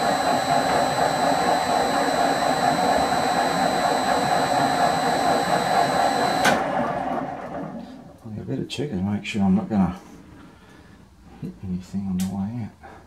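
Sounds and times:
high drive whine: 0.0 - 6.6
lathe running: 0.0 - 7.4.

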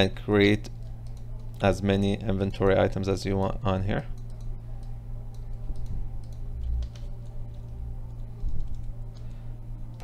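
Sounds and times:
steady low hum: 0.0 - 10.0
typing on computer keyboard: 8.4 - 8.9.

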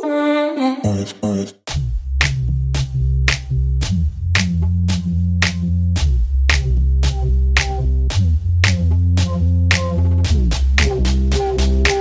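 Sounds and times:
deep bass line: 0.8 - 12.0
electronic music: 3.3 - 12.0.

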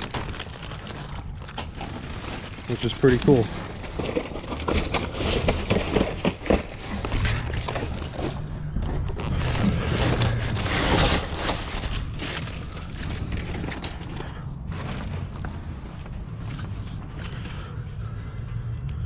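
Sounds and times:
plastic bags rustling: 0.0 - 17.7
steady low rumble: 6.6 - 19.0.

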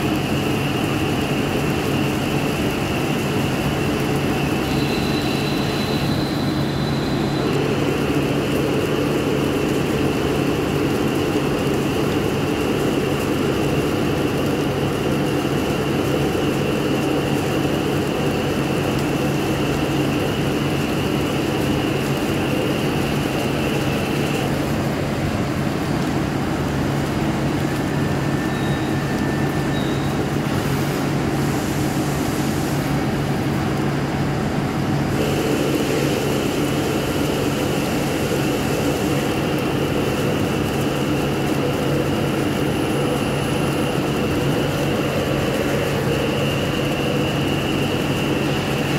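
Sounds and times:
high steady whine: 0.0 - 48.9
lathe machine hum: 34.0 - 48.9.

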